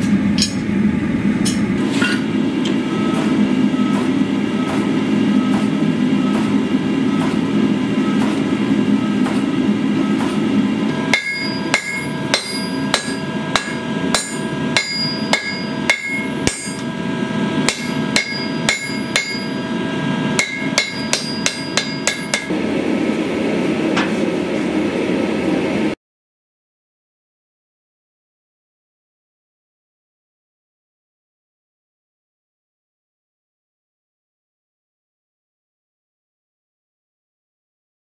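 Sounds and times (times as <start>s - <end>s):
low hum of forging equipment: 0.0s - 26.0s
hammer ringing on steel: 10.2s - 17.0s, 17.6s - 19.8s, 20.4s - 22.5s.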